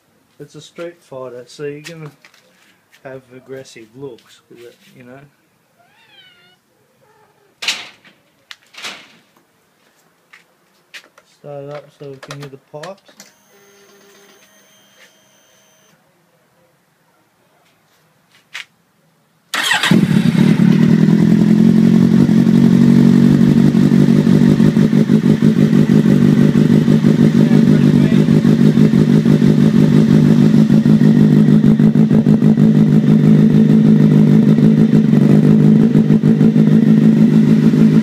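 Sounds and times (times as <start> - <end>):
motorcycle engine starting and idling: 19.5 - 38.0.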